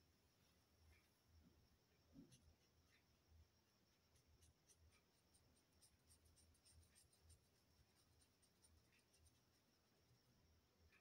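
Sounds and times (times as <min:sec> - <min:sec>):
crayon scratching on paper: 0:04.0 - 0:09.7.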